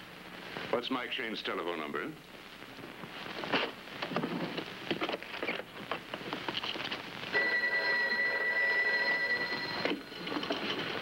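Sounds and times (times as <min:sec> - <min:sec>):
telephone bell ringing: 0:07.3 - 0:10.5.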